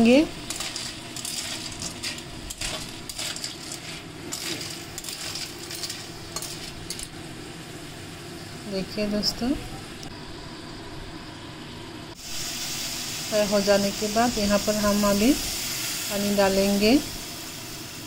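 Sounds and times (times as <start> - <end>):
oil sizzling: 0.0 - 18.0
shells scraping in a metal pan: 0.4 - 7.1.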